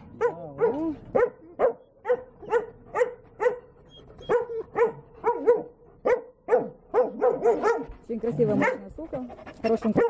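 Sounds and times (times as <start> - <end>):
dogs barking: 0.1 - 9.0.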